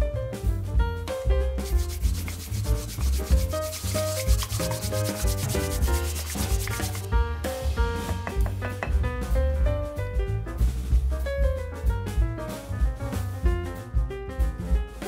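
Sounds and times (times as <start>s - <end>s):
background music: 0.3s - 15.0s
honey dipper scraping a glass: 1.6s - 7.1s.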